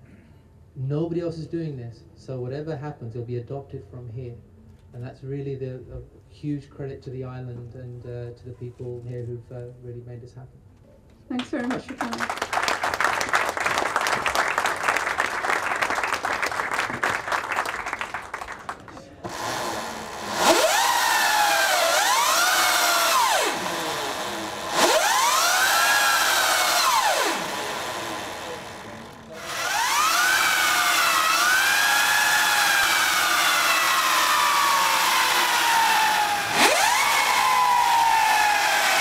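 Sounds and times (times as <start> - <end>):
applause: 11.4 - 19.3
electric motor whining: 19.2 - 39.0.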